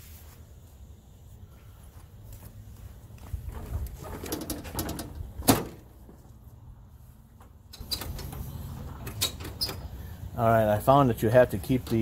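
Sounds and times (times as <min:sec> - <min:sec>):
seat creaking and rustling: 0:03.2 - 0:06.3.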